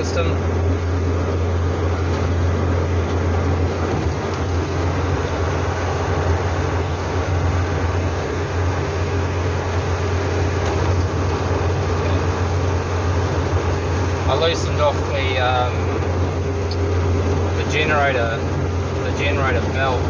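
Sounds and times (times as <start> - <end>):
tyre and wind noise: 0.0 - 14.3
car engine drone: 0.0 - 20.0.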